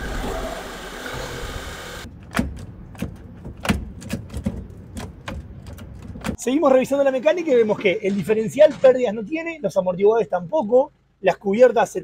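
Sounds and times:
sharp clicks and knocks: 2.1 - 6.4
diesel engine idling: 9.4 - 12.0.

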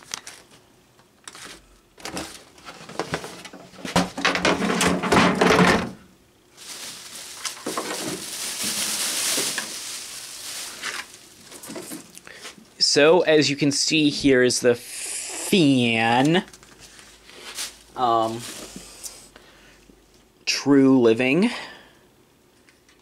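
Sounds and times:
packaging rustling: 0.0 - 0.6, 6.5 - 12.6
packaging knocks and rustles: 1.3 - 6.0, 6.6 - 12.2.

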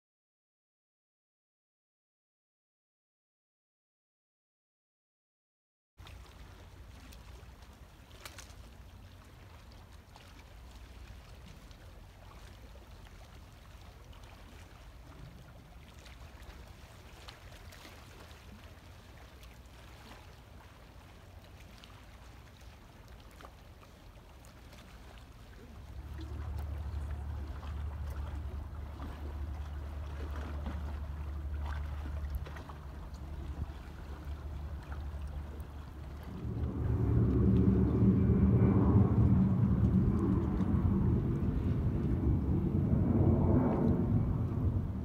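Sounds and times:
faint water sounds: 6.0 - 45.0
low rumble: 24.8 - 45.0.

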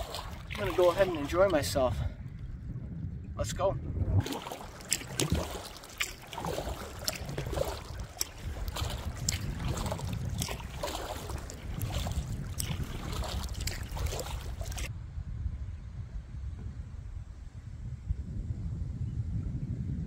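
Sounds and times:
canoe paddle splashing: 0.0 - 1.9, 4.2 - 14.9
wind rumble on microphone: 0.0 - 20.0.

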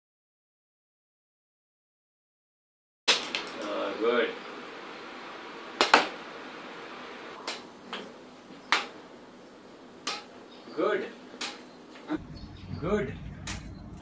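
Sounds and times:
badminton racket hitting shuttlecock: 5.8 - 6.2, 7.4 - 9.0, 10.0 - 10.4, 11.4 - 11.7.

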